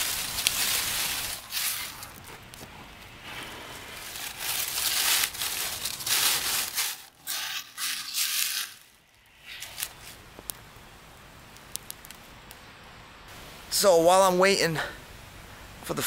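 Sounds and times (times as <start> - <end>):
dry leaves and twigs crunching: 0.0 - 10.5.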